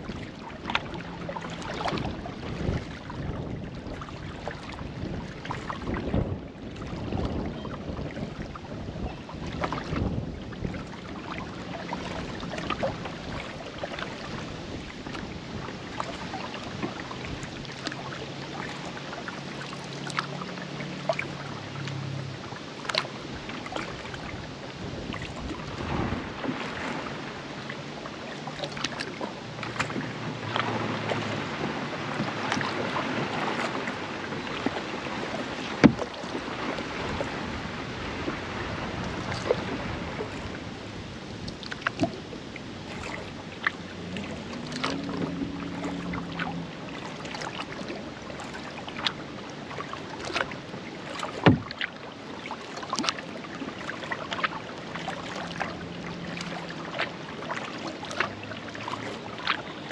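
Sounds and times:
water splashing off paddles: 0:00.0 - 0:59.9
low droning hum: 0:42.1 - 0:47.1.

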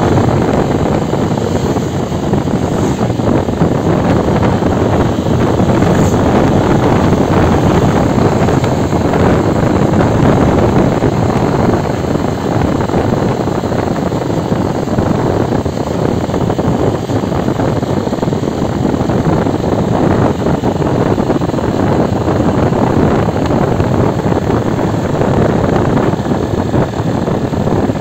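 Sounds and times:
motorcycle engine running: 0:00.0 - 0:28.0
wind rushing over microphone: 0:00.0 - 0:28.0.

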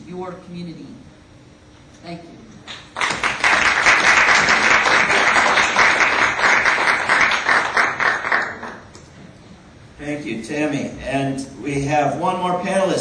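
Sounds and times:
audience applauding: 0:02.7 - 0:08.9.

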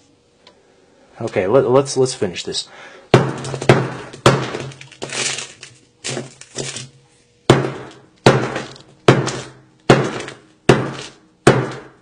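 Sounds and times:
hammer striking phone: 0:03.1 - 0:04.8, 0:07.5 - 0:12.0
shattered glass crunching: 0:04.3 - 0:06.9, 0:07.8 - 0:11.2.

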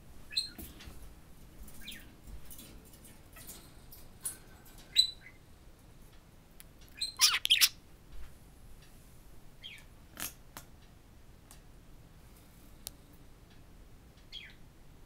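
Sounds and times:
budgerigar chirping: 0:07.0 - 0:07.8.

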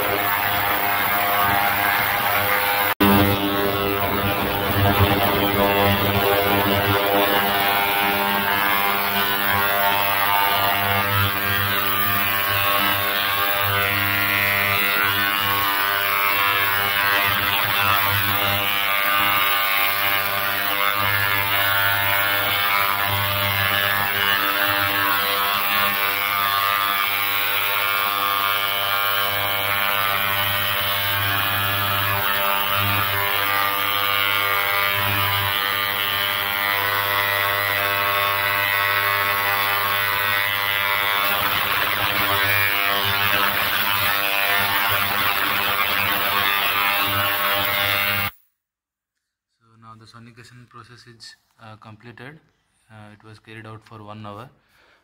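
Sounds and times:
ultrasonic cleaner buzzing: 0:00.0 - 0:48.4.

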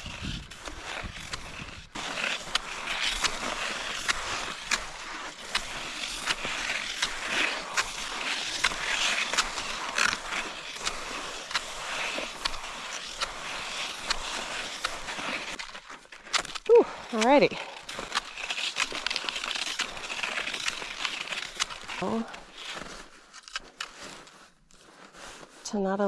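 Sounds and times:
skis hissing on snow: 0:00.0 - 0:15.5
ski pole ticks: 0:00.7 - 0:22.0, 0:22.8 - 0:24.3.

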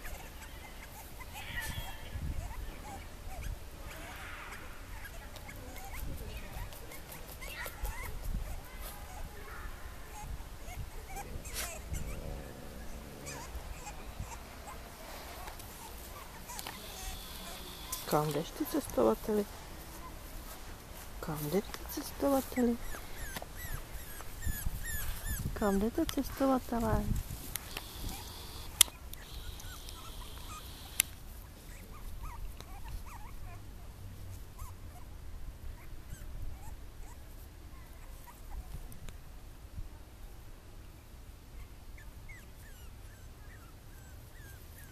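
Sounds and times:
puppies whimpering: 0:00.0 - 0:09.4, 0:10.0 - 0:19.4, 0:21.5 - 0:26.0, 0:27.7 - 0:31.1, 0:31.7 - 0:33.6, 0:41.6 - 0:44.9.

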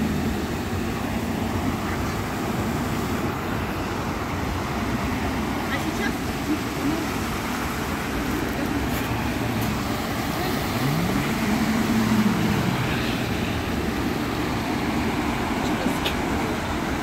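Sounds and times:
rushing water hiss: 0:00.0 - 0:17.0
tyres splashing through water: 0:00.0 - 0:17.0
car engine accelerating: 0:07.0 - 0:17.0.

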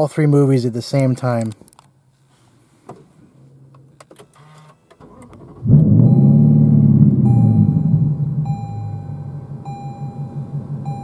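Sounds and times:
car engine starting and running: 0:03.4 - 0:11.0.

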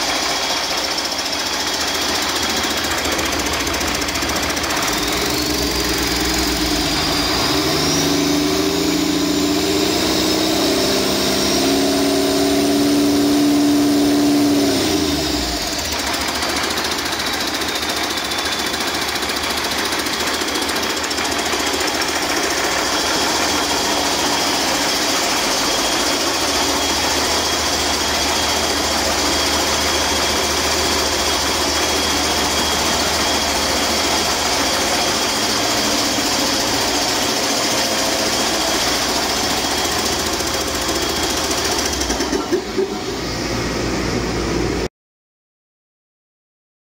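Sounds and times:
diesel engine revving and idling: 0:00.0 - 0:44.9
turbocharger whine: 0:00.0 - 0:44.9.

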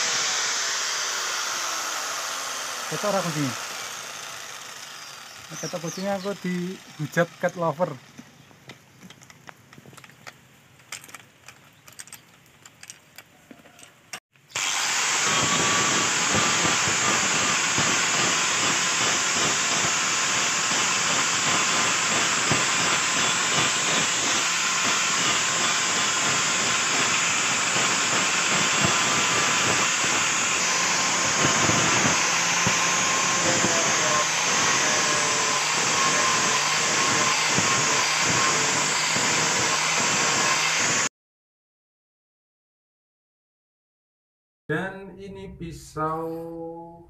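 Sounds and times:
angle grinder sanding wood: 0:00.0 - 0:08.1, 0:14.5 - 0:41.1.

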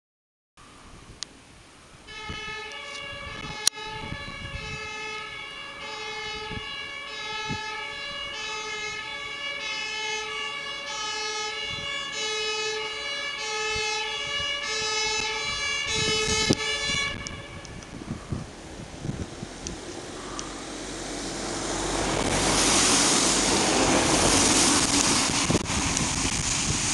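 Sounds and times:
two-tone ambulance siren: 0:02.1 - 0:19.2.

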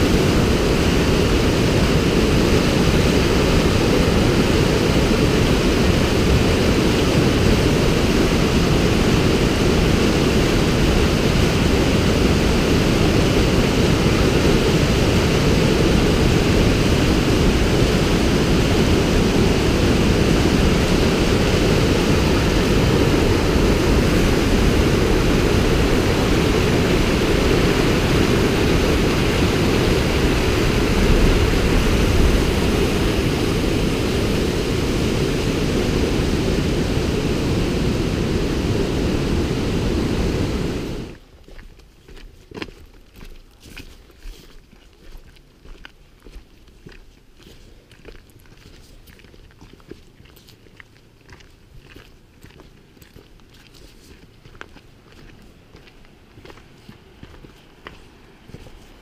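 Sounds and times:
river rapids rushing over rocks: 0:00.0 - 0:41.2.

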